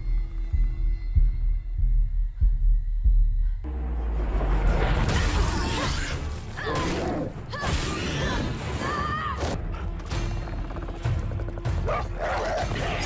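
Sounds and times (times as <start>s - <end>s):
tense music: 0.0s - 13.0s.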